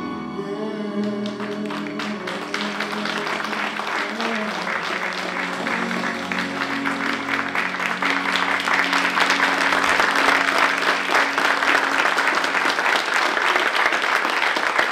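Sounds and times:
music with held notes: 0.0 - 13.9
audience applauding: 1.2 - 14.9.

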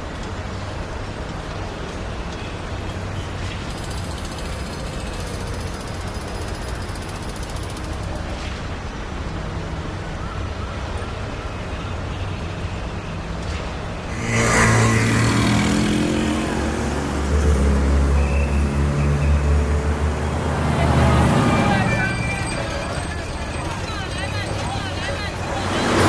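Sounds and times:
vehicle rumble: 12.9 - 26.0
engine rising in pitch: 14.1 - 26.0.

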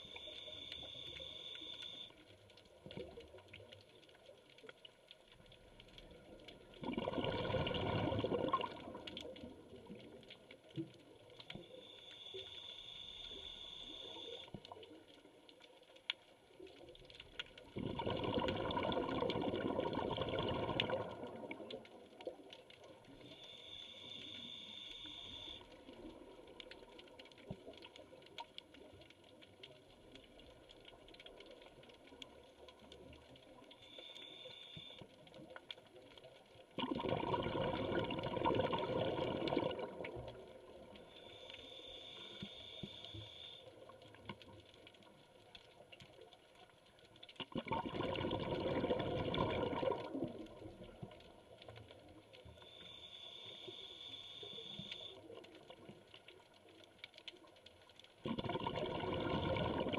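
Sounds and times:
exhaled bubbles rushing: 6.6 - 10.2, 17.7 - 22.4, 36.8 - 40.9, 47.5 - 51.2, 58.2 - 59.9
hissing inhales through regulator: 11.7 - 14.5, 23.2 - 25.8, 41.0 - 43.7, 52.6 - 55.2.

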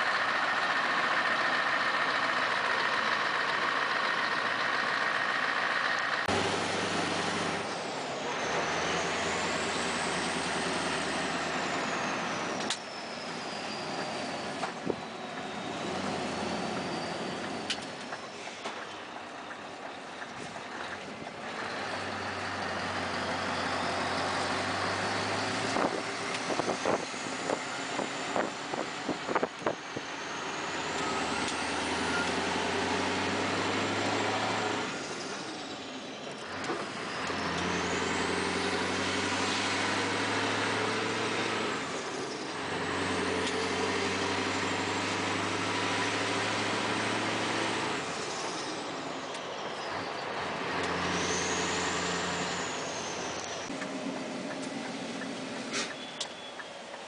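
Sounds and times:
diesel truck engine from inside cab: 0.0 - 57.0
faint high whistle: 55.7 - 56.8.

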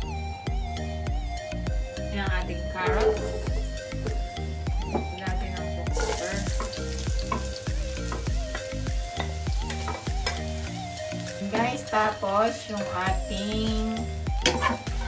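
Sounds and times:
background music with steady beat: 0.0 - 15.0
vegetables sizzling in hot oil: 2.4 - 15.0
spatula stir-frying in wok: 5.8 - 13.8, 14.4 - 15.0.

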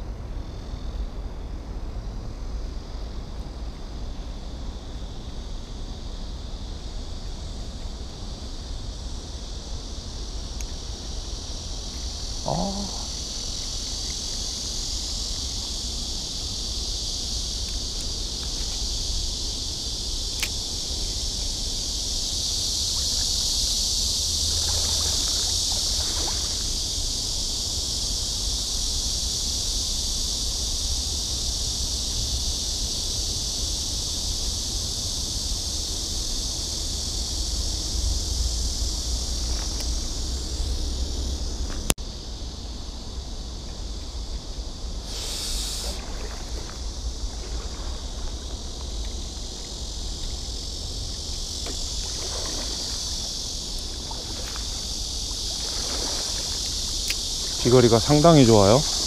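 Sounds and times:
high insect chorus: 0.0 - 59.0.

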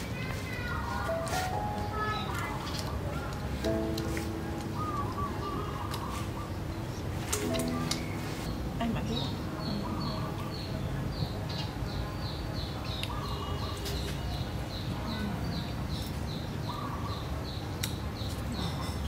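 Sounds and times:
bird chirping: 1.1 - 19.0
lower bird call: 4.6 - 8.6.

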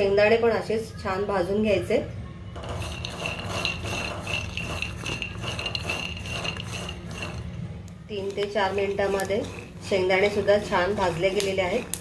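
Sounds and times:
peanuts rattling in a pan: 2.6 - 7.5, 8.1 - 12.0.

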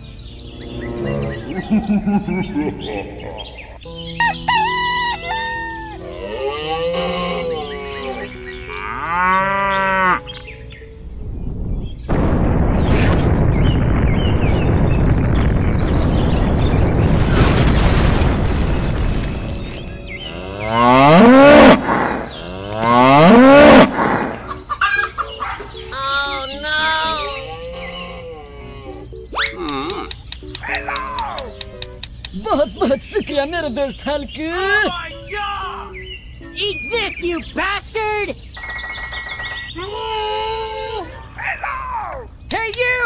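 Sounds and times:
background music with held notes: 0.0 - 12.0, 24.4 - 37.7
cow mooing: 0.6 - 1.9, 5.9 - 10.3, 20.2 - 24.4, 26.6 - 28.9.

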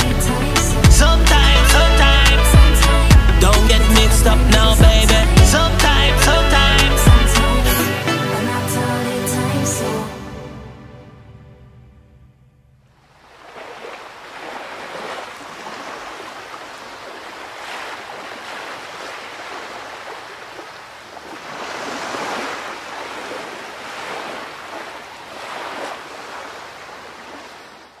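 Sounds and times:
sea waves washing in: 13.0 - 28.0.

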